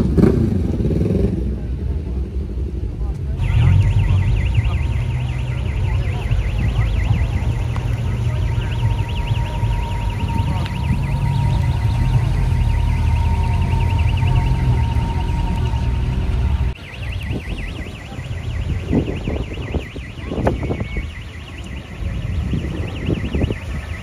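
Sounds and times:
deep low rumble: 1.4s - 16.8s
warbling electronic alarm tone: 3.4s - 24.0s.

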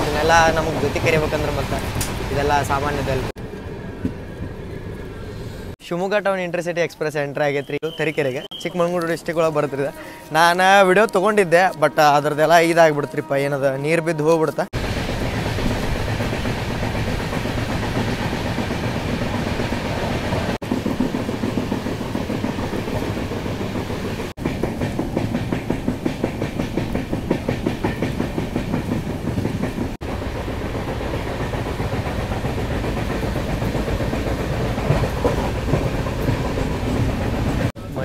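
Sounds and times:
train wheels clattering over rail joints: 14.8s - 37.7s.

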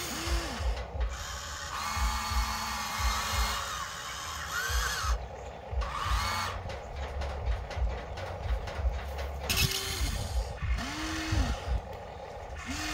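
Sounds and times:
toy electric motors whining: 0.0s - 6.8s, 9.5s - 12.9s.

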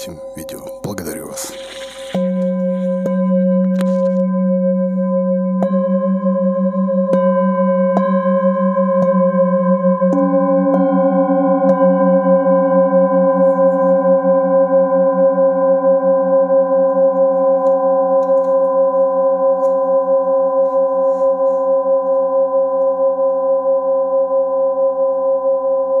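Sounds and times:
singing bowls ringing: 0.0s - 26.0s.

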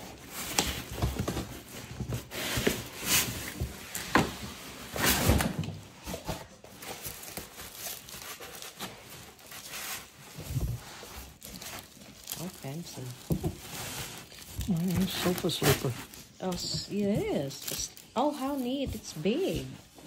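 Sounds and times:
plastic wrapping crinkling: 5.0s - 20.0s.

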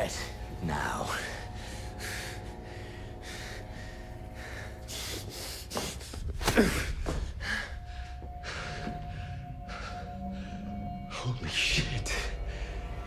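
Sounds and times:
man breathing heavily: 1.3s - 11.1s.

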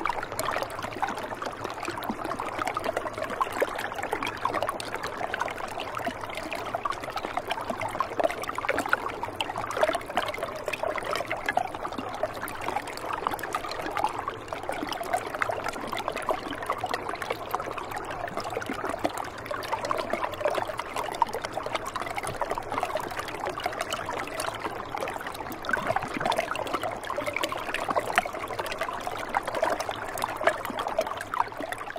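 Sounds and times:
river water trickling over rocks: 0.0s - 31.9s.

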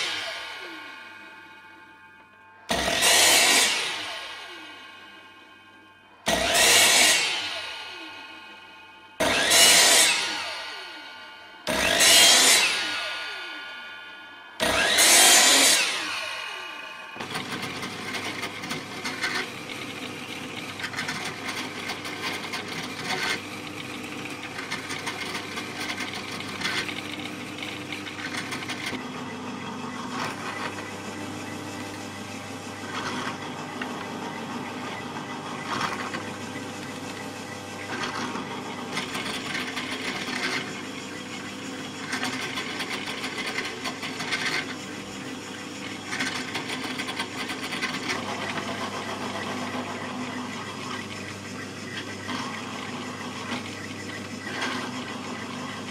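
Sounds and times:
drill press motor running: 0.0s - 55.9s
drill bit cutting wood: 2.7s - 5.5s, 6.2s - 13.8s, 14.6s - 55.9s.

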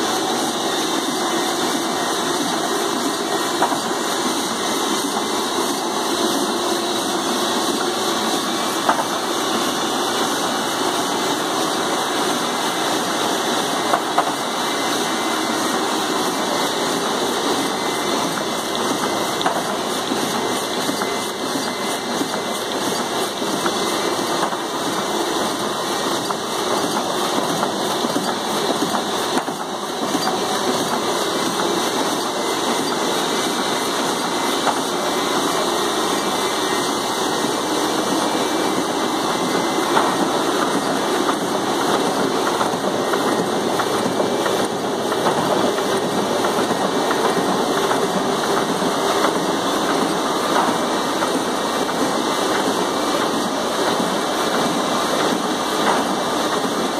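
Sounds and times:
printing press clattering: 0.0s - 56.9s.

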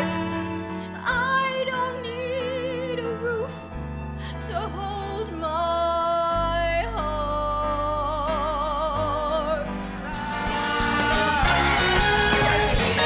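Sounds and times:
sustained musical accompaniment: 0.0s - 13.0s
person singing with vibrato: 7.6s - 13.0s.

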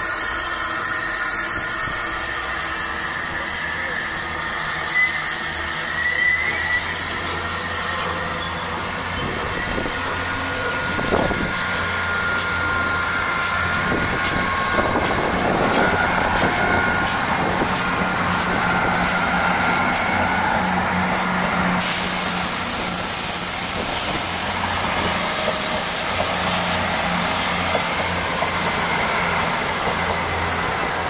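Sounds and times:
diesel train humming: 0.0s - 31.0s
train wheels clicking over rail joints: 6.6s - 31.0s.

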